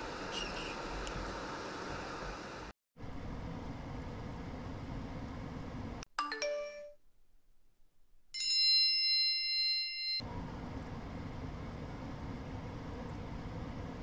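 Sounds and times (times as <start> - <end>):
bell-like ding: 8.4 - 10.2.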